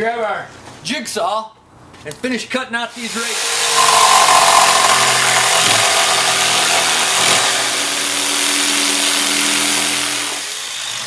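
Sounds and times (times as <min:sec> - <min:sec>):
jigsaw cutting wood: 0:03.3 - 0:11.0.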